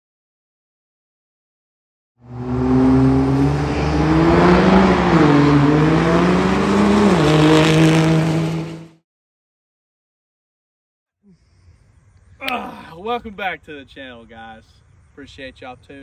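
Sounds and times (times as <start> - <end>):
diesel truck engine accelerating: 2.2 - 9.0.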